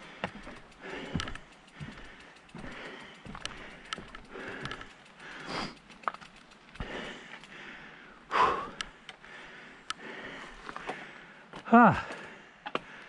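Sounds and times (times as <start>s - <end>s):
person breathing hard: 0.0s - 6.0s, 6.7s - 13.0s
footsteps on gravel steps: 0.0s - 7.5s.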